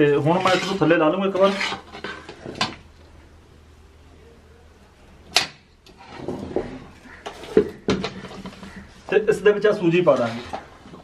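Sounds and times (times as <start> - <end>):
metal scraping and knocking on stove: 0.3 - 2.8.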